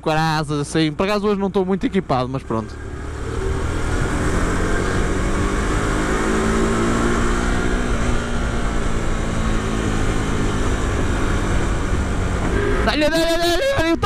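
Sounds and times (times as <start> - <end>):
motorcycle engine at high revs: 2.6 - 12.8
rush of wind: 2.8 - 13.0.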